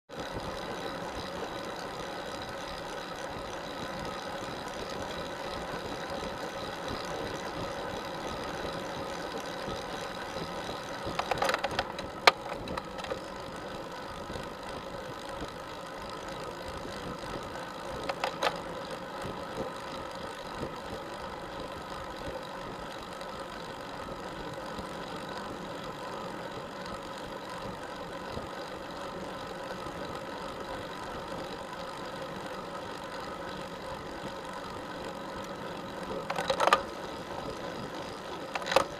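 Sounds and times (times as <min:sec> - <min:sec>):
sharp clicking clatter: 0:00.1 - 0:23.7, 0:30.8 - 0:38.9
bicycle hum and road noise: 0:00.1 - 0:38.9.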